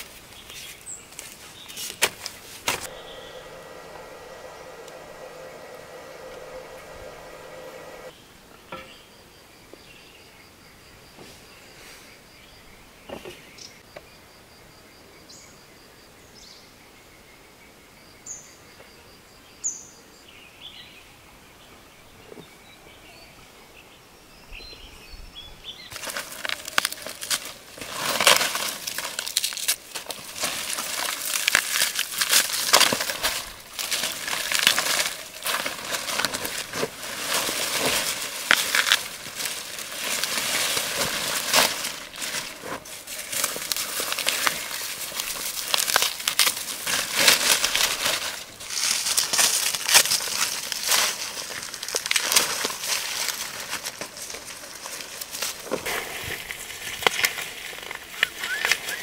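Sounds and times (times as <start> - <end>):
dry leaves rustling and crackling: 0.0 - 8.1, 25.9 - 59.0.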